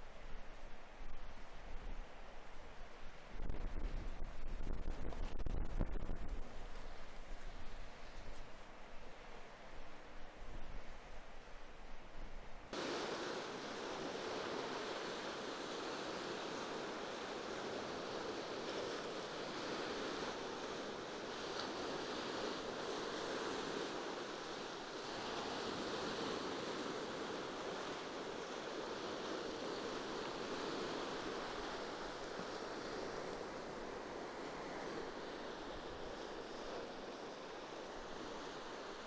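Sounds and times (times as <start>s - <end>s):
wind: 0.0s - 39.0s
sea waves washing onto shore: 12.7s - 39.0s.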